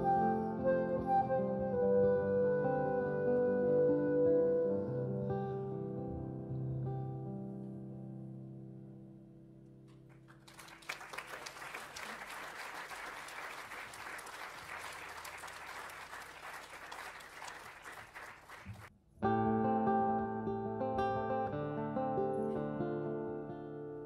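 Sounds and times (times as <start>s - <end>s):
audience applause: 10.1s - 18.9s.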